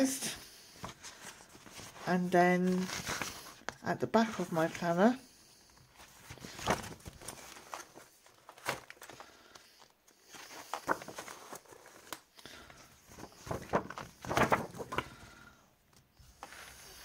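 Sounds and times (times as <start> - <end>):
paper pages rustling: 0.7 - 17.0.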